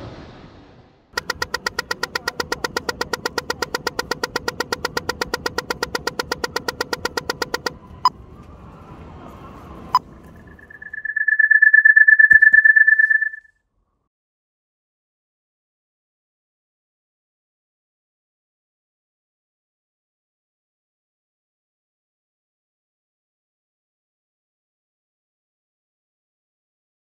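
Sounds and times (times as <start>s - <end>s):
crossing signal ticking rapidly: 1.2s - 7.8s, 10.4s - 13.5s
high-pitched beep: 1.2s - 7.8s, 10.4s - 13.5s
sharp clicks: 1.2s - 7.8s, 10.6s - 13.4s.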